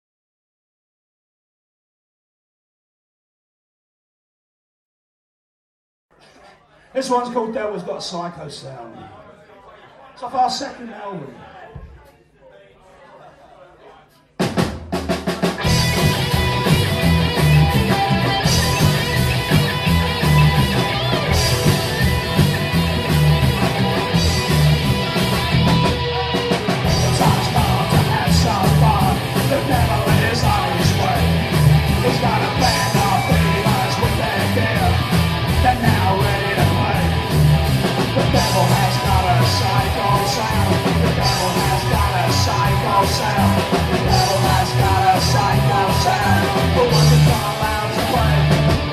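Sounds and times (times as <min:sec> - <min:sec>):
driving drum beat: 0:14.3 - 0:48.9
electric guitar: 0:15.5 - 0:48.9
slapped upright bass: 0:15.6 - 0:26.0
man singing: 0:26.3 - 0:37.4, 0:38.1 - 0:48.9.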